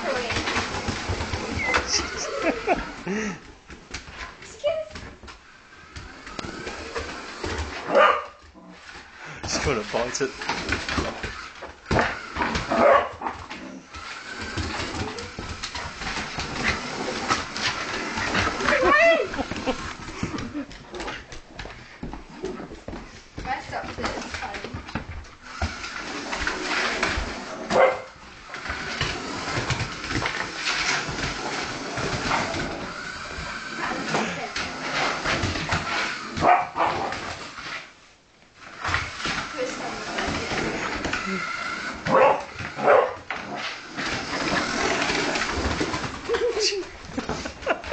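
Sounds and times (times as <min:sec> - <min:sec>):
clicks and knocks on wooden floor: 0:00.0 - 0:02.8, 0:08.9 - 0:13.6, 0:14.3 - 0:32.9
dog whining and yipping: 0:01.4 - 0:02.3
dog barking: 0:07.9 - 0:08.4, 0:12.8 - 0:13.2, 0:27.7 - 0:28.1, 0:36.4 - 0:37.1, 0:42.1 - 0:43.2.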